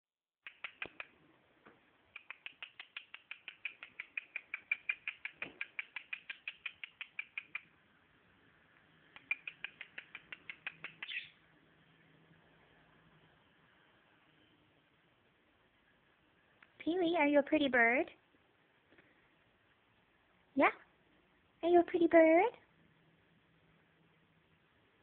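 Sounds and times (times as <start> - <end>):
cockatiel chirping rapidly: 2.2 - 7.7, 9.2 - 11.4.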